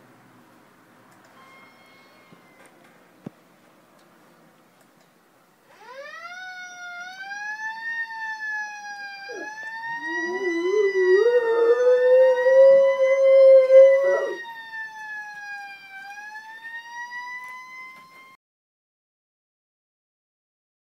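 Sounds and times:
fire truck siren wailing: 5.7 - 18.4
dog howling: 9.3 - 14.4.

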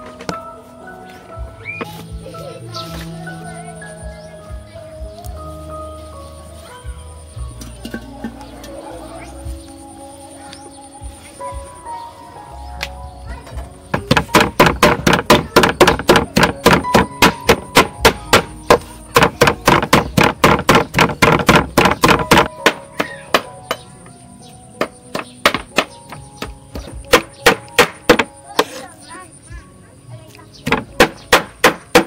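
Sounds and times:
cleaver chopping on wooden board: 13.9 - 23.8, 24.8 - 28.8, 30.6 - 32.0.

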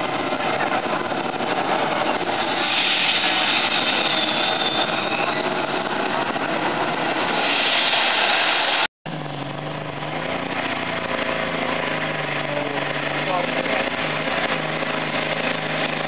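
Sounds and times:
tractor engine running flat out: 9.1 - 16.0.

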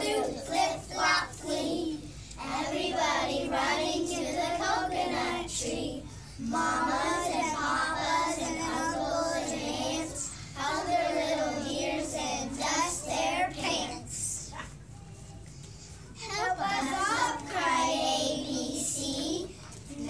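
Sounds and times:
children singing in unison: 0.0 - 13.8.

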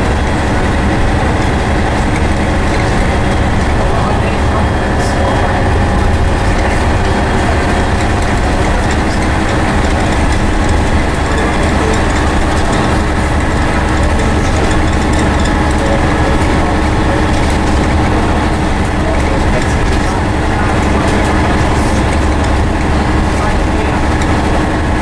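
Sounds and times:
bus diesel engine droning: 0.0 - 25.0
road noise: 0.0 - 25.0.

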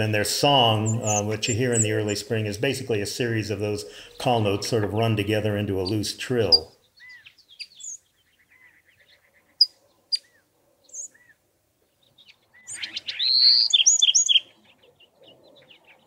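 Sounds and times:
wren song: 0.0 - 16.0
bird chink calls: 5.8 - 11.4, 12.0 - 16.0.

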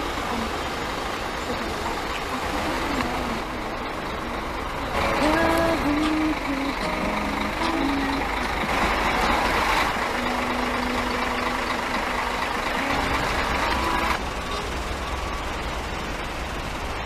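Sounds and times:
diesel engine idling: 0.0 - 17.0.

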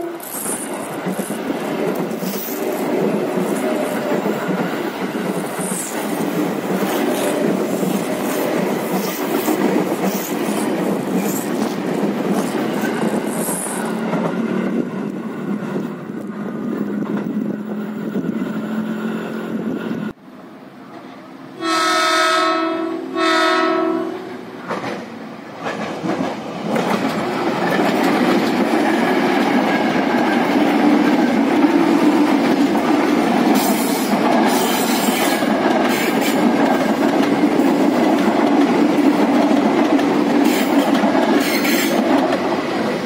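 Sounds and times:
electric train rumbling past: 0.0 - 43.0
train horn blasts: 21.5 - 24.4.

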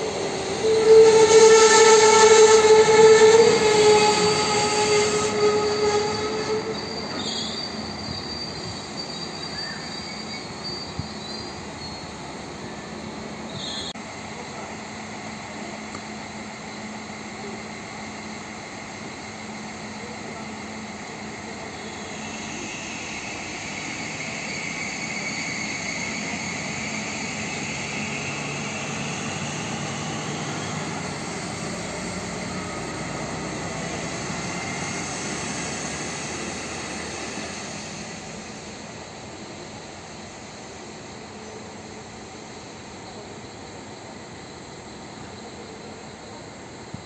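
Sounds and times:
diesel railcar engine drone: 0.0 - 47.0
engine whine: 21.0 - 40.4.

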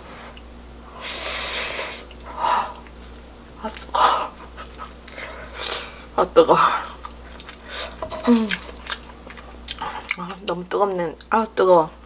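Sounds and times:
person blowing on food: 0.9 - 2.7.

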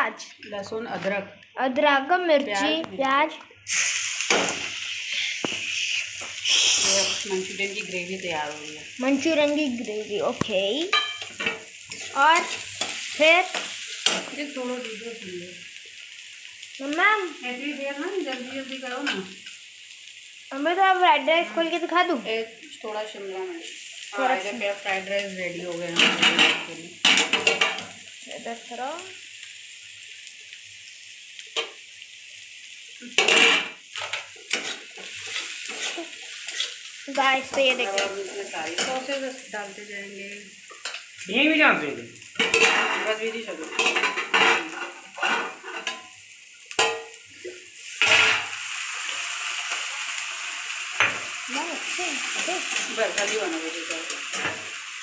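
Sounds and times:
vegetables sizzling in oil: 0.0 - 55.0
spatula scraping a pan: 33.0 - 36.9, 42.4 - 46.1.

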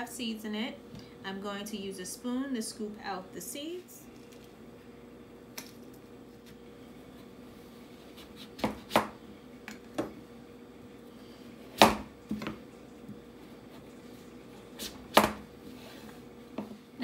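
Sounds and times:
faint steady hum: 0.0 - 17.0
knife chopping on plastic board: 8.2 - 9.2, 11.7 - 12.6, 14.8 - 15.4.

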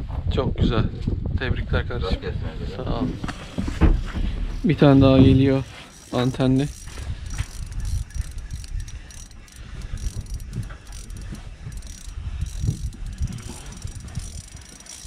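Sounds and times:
wind: 0.0 - 15.0
handling rumble: 2.9 - 15.0
fishing reel clicking and whirring: 4.6 - 15.0.

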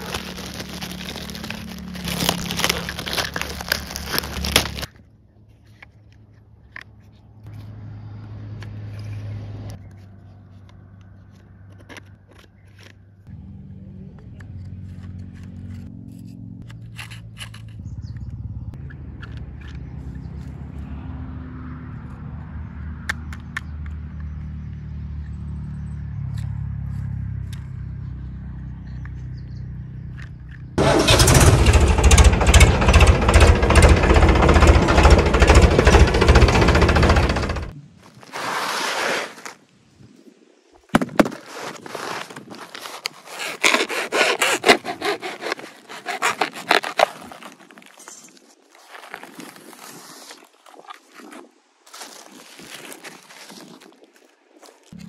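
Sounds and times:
foam sheet being cut and torn: 0.0 - 4.9, 38.1 - 39.6, 41.1 - 54.0
low engine-like rumble: 0.0 - 38.0.

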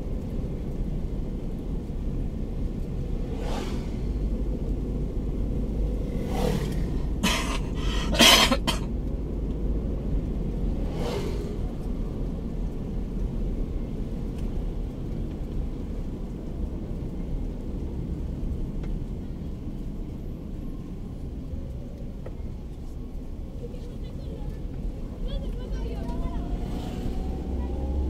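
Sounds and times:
car engine and road rumble: 0.0 - 28.0
brief whoosh: 3.2 - 4.2, 10.8 - 11.7.

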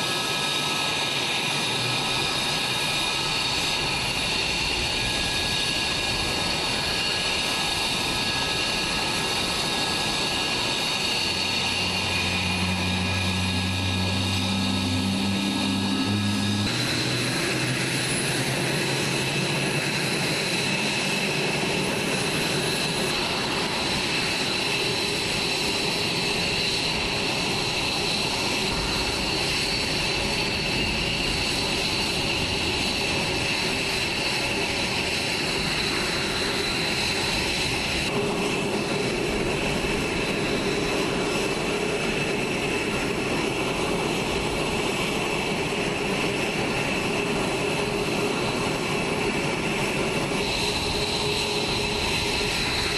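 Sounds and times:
constant rushing noise: 0.0 - 52.9
jet turbine whine: 0.0 - 52.9.

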